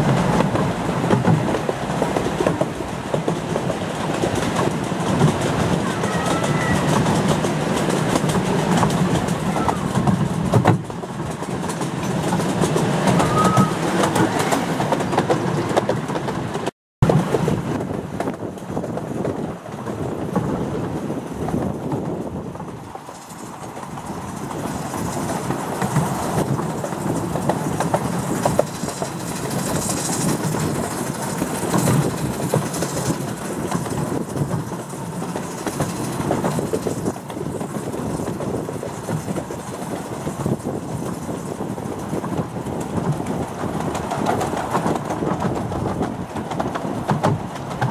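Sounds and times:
clickety-clack over rail joints: 0:00.0 - 0:47.9
train wheels rumbling on track: 0:00.0 - 0:47.9
short high squeals: 0:13.2 - 0:14.5.

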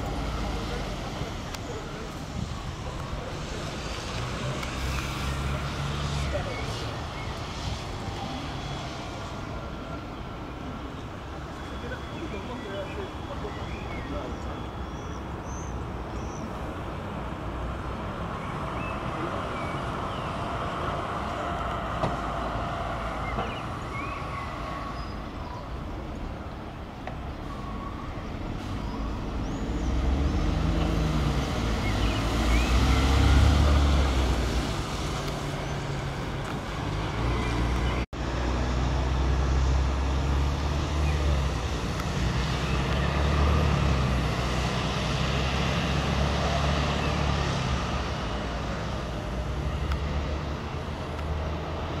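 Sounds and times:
bus engine humming: 0:00.0 - 0:15.4
road noise: 0:00.0 - 0:52.0.

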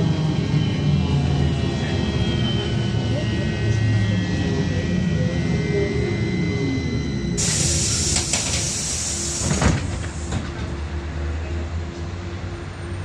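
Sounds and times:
compressed air hissing: 0:07.4 - 0:10.3.

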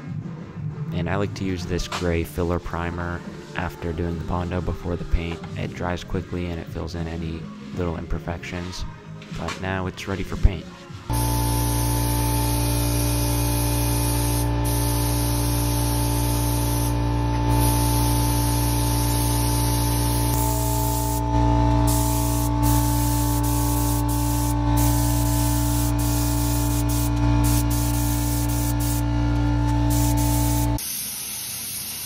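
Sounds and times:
spray gun hissing: 0:11.1 - 0:21.2, 0:21.9 - 0:29.0, 0:29.8 - 0:32.0
steady low hum: 0:11.1 - 0:30.8.

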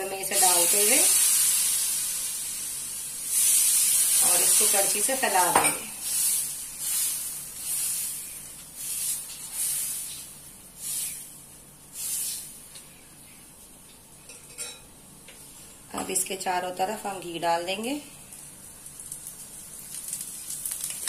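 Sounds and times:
batter sizzling: 0:00.0 - 0:12.8, 0:18.2 - 0:21.0
ladle scraping on hot griddle: 0:06.0 - 0:11.3.

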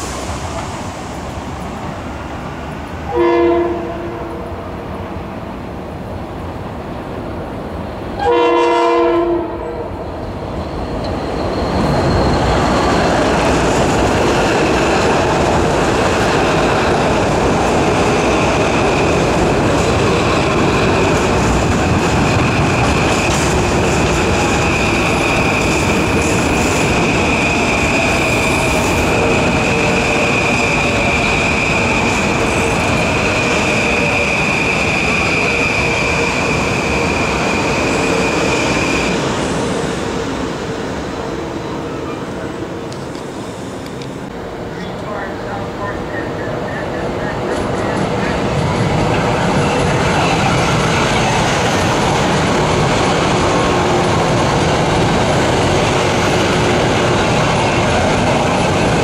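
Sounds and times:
train wheel and rail noise: 0:00.0 - 0:59.0
train horn blast: 0:03.1 - 0:04.6, 0:08.2 - 0:10.0
high steady squeal: 0:10.2 - 0:13.4.

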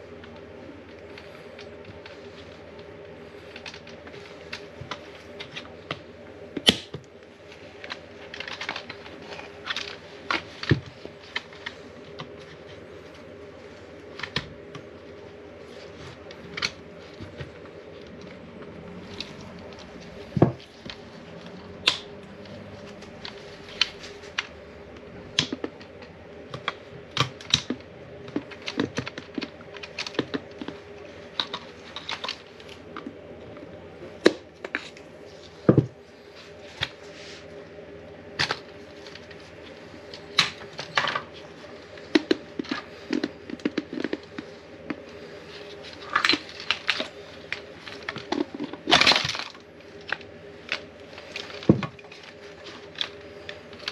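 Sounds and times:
faint steady hum: 0:00.0 - 0:53.9.

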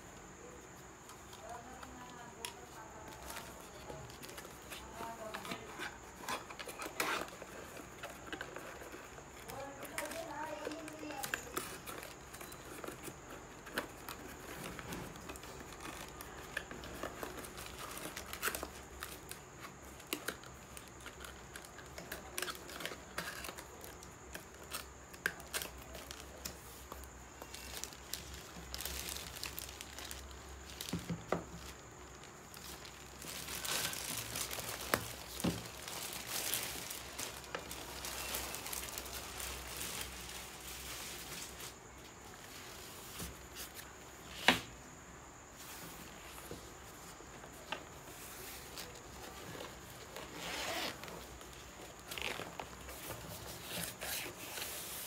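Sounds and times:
plastic bag crinkling: 0:01.4 - 0:41.9.

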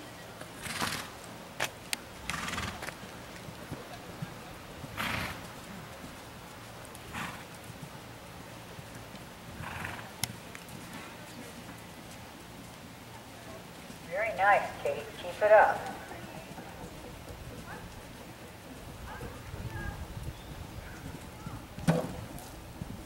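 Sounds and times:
hoofbeats on sand: 0:02.2 - 0:23.0
horse snorting: 0:02.3 - 0:02.9, 0:04.9 - 0:05.4, 0:07.1 - 0:07.4, 0:09.6 - 0:10.1.

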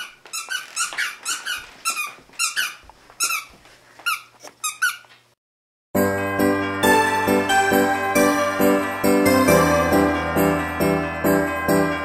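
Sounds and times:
squeaky toy squeaks: 0:00.0 - 0:05.2.

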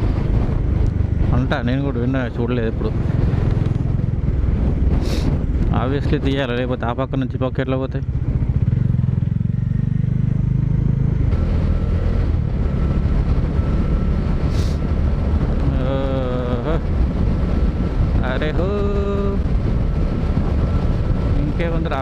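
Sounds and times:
motorcycle engine running: 0:00.0 - 0:22.0
wind on microphone: 0:00.0 - 0:22.0.

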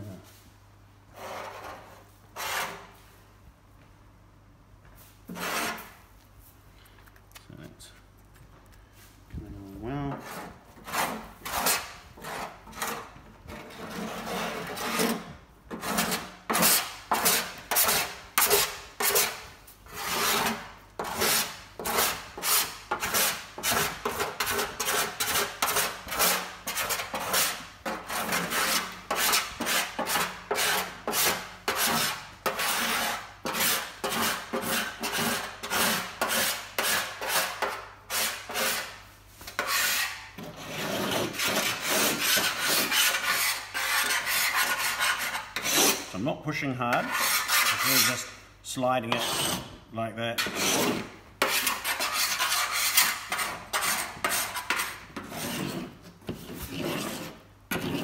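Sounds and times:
scraper scraping paint off metal: 0:05.3 - 0:06.0, 0:10.1 - 0:46.1, 0:46.9 - 0:48.3, 0:50.4 - 0:58.0.

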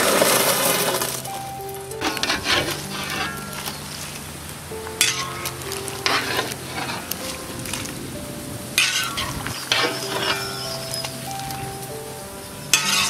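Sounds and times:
ladle scraping a pan: 0:02.0 - 0:03.8, 0:06.0 - 0:07.2, 0:08.8 - 0:11.1, 0:12.8 - 0:13.0.

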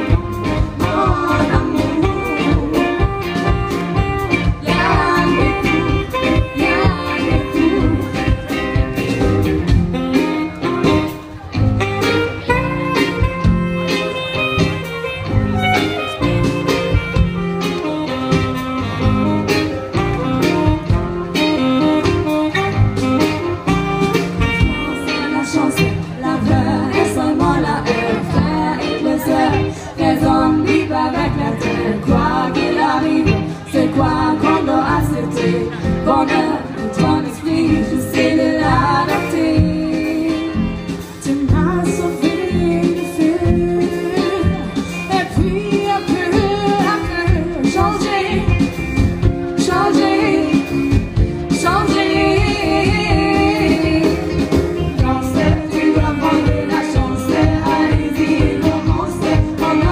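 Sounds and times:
lead singer: 0:00.0 - 0:11.5, 0:24.3 - 0:59.9
live band playing: 0:00.0 - 0:59.9.

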